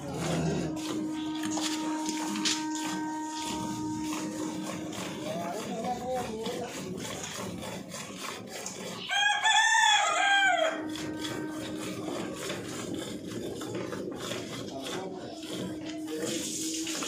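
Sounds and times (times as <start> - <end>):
rooster crowing: 9.0 - 11.6.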